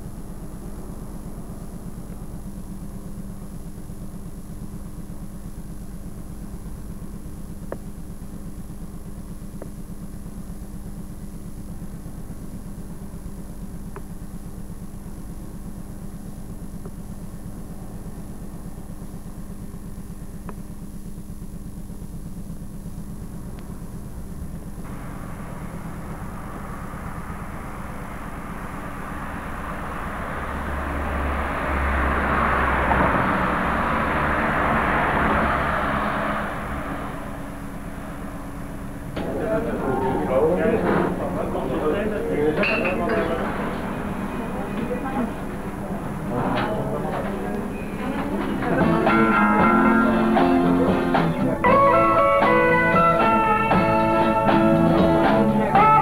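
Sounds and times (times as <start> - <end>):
steady low hum: 0.0 - 56.0
rushing noise: 24.8 - 46.4.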